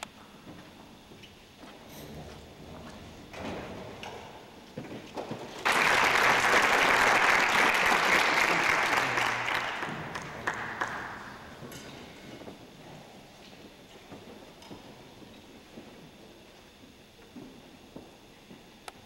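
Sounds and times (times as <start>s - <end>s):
audience applause: 5.6s - 11.7s.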